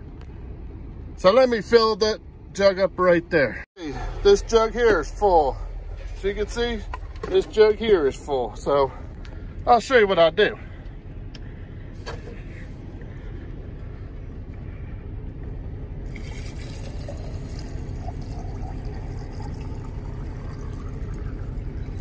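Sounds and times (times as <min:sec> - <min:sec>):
steady low rumble: 0:00.0 - 0:22.0
water pouring onto ice: 0:16.1 - 0:21.6.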